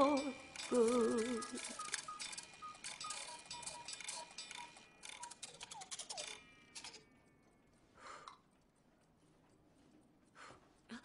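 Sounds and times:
clock mechanism ticking: 0:00.0 - 0:07.5.

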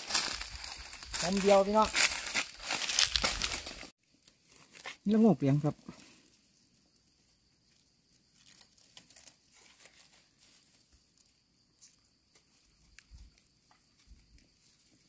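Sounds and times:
knife scraping soil and leaves: 0:00.0 - 0:05.3, 0:07.4 - 0:11.0.

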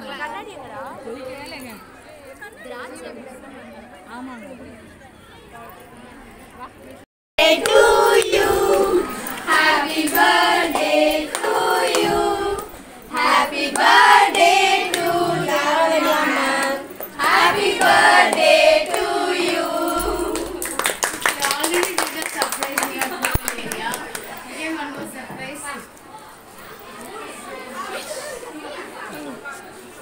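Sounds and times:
women singing together: 0:07.4 - 0:21.9.

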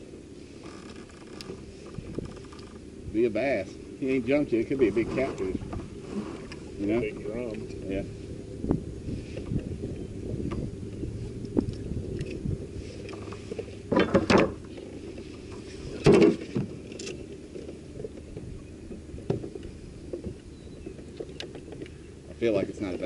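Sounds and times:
water rushing along hull: 0:00.0 - 0:23.0.

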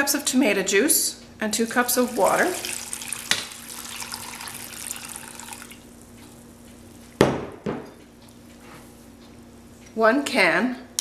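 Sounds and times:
juice pouring and splashing: 0:01.5 - 0:06.0.

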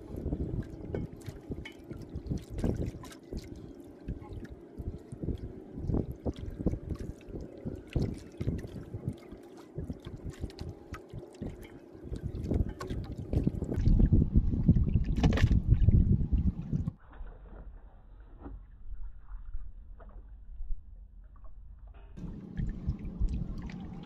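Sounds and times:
water slapping boat hull: 0:00.0 - 0:17.0, 0:22.2 - 0:24.0
wind rumble on microphone: 0:00.0 - 0:24.0.

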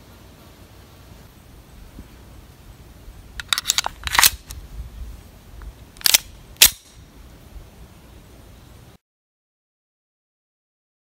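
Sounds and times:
pistol action clicking: 0:03.4 - 0:04.6, 0:06.0 - 0:07.0.

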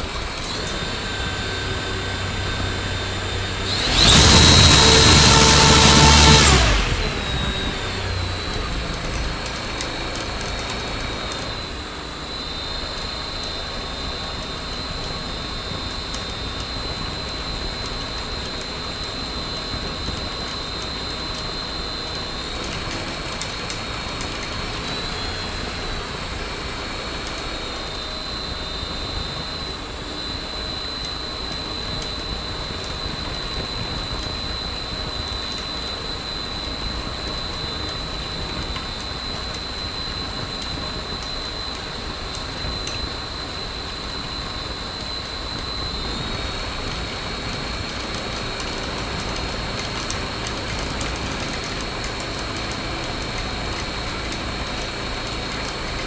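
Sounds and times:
propeller wash rushing: 0:00.0 - 0:11.6
electric motor high whine: 0:00.0 - 0:56.0.

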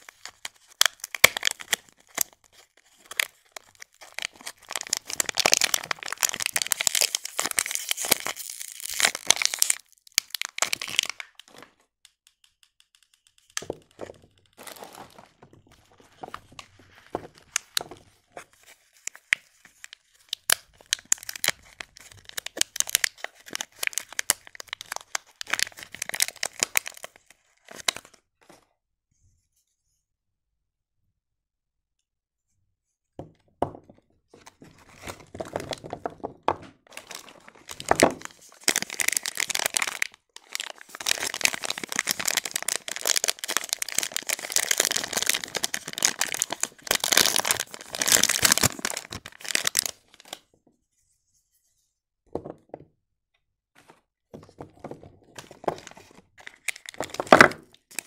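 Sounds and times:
cellophane crinkling and tearing: 0:00.0 - 0:11.7, 0:14.0 - 0:17.9, 0:18.5 - 0:28.2, 0:34.7 - 0:36.1, 0:36.8 - 0:50.5, 0:55.4 - 0:58.0.

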